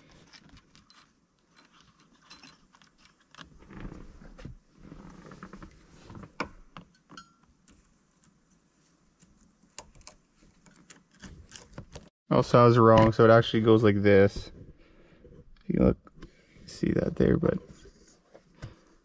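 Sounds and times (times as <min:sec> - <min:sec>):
tools clicking and rattling: 0:00.2 - 0:03.4.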